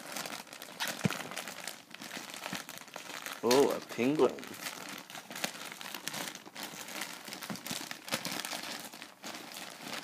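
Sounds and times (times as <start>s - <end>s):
plastic satchel crinkling: 0.0s - 10.0s.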